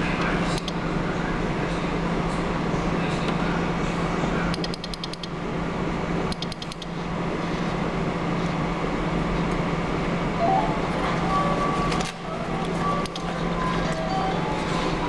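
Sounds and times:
steady hum: 0:00.0 - 0:15.0
faint relay clicks: 0:04.5 - 0:05.4, 0:06.3 - 0:06.9.

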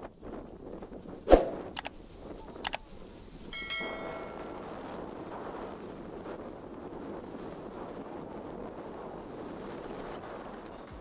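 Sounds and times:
wind rushing over microphone: 0:00.0 - 0:11.0
bell-like chime: 0:03.6 - 0:04.8.

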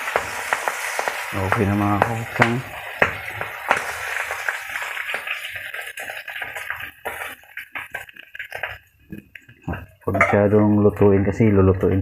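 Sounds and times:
fish sizzling in hot oil: 0:00.0 - 0:10.0.

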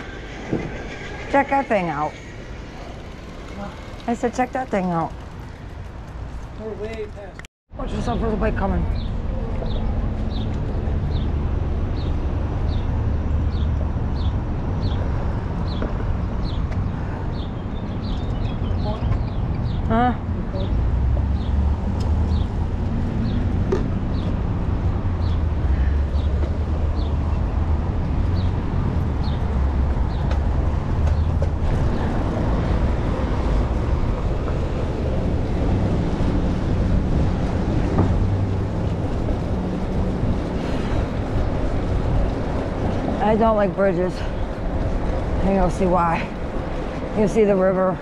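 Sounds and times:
bicycle rolling: 0:00.0 - 0:07.4, 0:21.3 - 0:48.0
wind buffeting microphone: 0:00.0 - 0:48.0.

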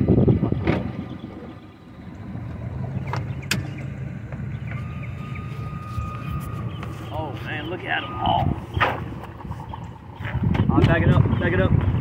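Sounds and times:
boat motor humming: 0:00.0 - 0:12.0
loud rumble: 0:00.0 - 0:12.0
thin steady whine: 0:01.0 - 0:10.4.

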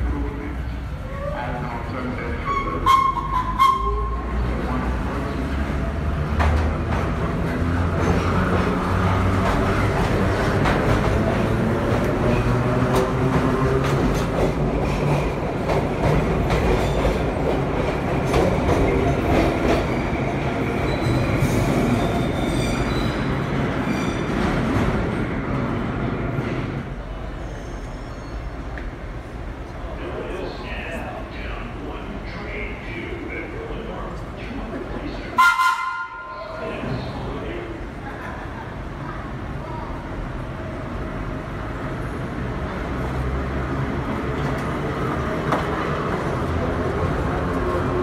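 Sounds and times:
subway train rumbling past: 0:00.0 - 0:48.0
high wheel squeal: 0:02.4 - 0:04.3
train horn: 0:35.4 - 0:36.4.

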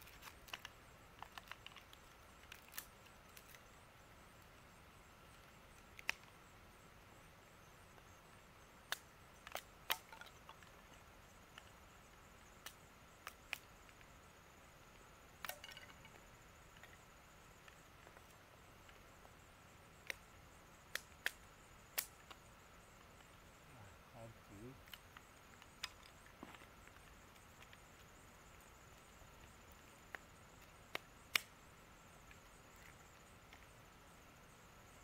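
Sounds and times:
wood sticks cracking: 0:00.0 - 0:03.6, 0:08.8 - 0:10.9, 0:15.4 - 0:17.0, 0:24.8 - 0:28.0.

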